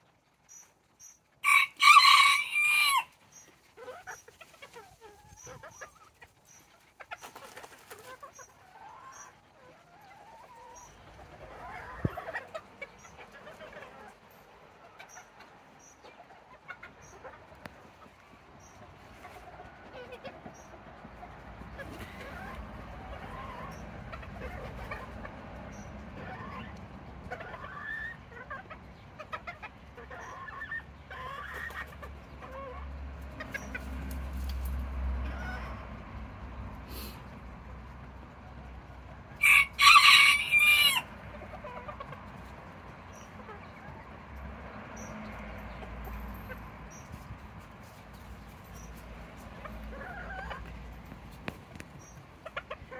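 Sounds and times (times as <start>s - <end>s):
chickens clucking: 0.0s - 52.9s
wavering drawn-out chicken call: 1.4s - 3.1s, 39.4s - 41.1s.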